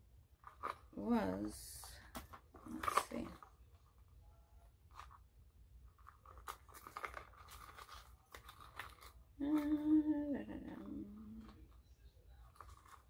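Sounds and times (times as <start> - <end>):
leather wallet rustling and clicking: 0.4 - 1.0, 5.9 - 9.6
woman humming: 9.4 - 11.6.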